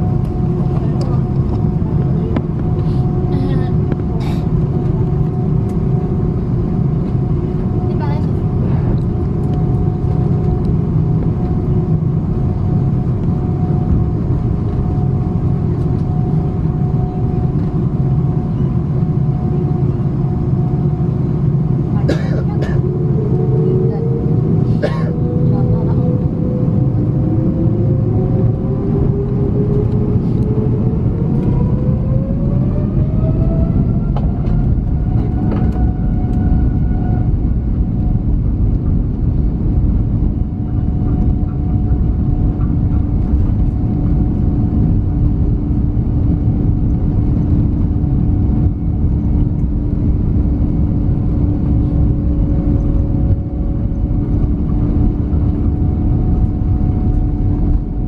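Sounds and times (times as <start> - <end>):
jet engine rumble: 0.0 - 58.0
jet engines spooling up: 22.8 - 58.0.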